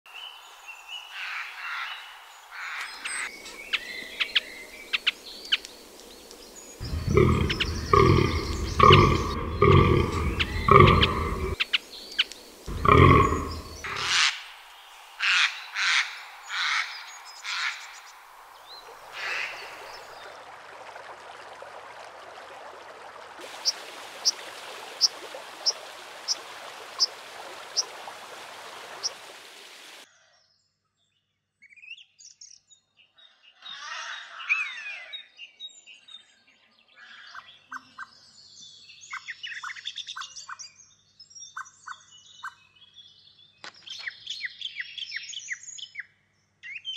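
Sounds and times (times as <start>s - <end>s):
woodland stream rushing: 0.1s - 30.1s
animal deep rhythmic grunting: 6.8s - 11.6s, 12.7s - 14.2s
bird chirps: 6.8s - 14.3s
bird calling: 6.8s - 14.5s.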